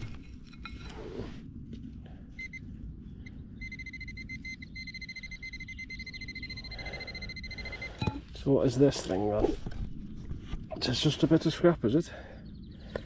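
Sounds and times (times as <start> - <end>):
low rumble: 0.0 - 13.0
steady high-pitched tone: 2.4 - 8.3
pinpointer short high beeps: 3.6 - 8.2.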